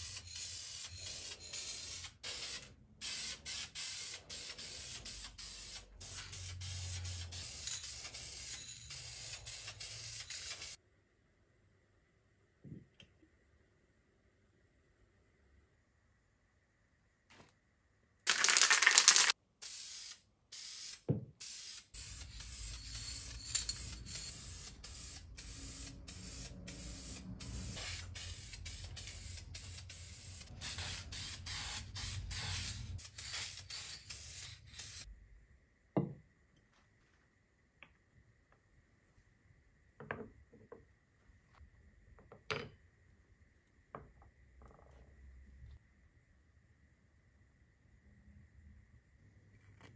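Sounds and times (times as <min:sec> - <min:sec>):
spray paint can hissing: 0:00.0 - 0:10.8, 0:18.3 - 0:35.1.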